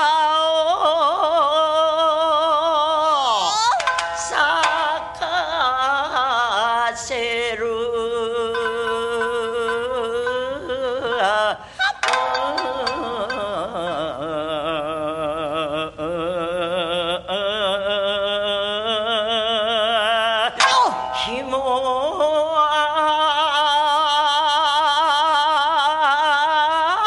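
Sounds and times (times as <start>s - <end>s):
woman singing long wavering notes: 0.1s - 16.4s, 20.6s - 24.6s
shamisen plucks: 3.5s - 15.5s, 20.6s - 23.6s.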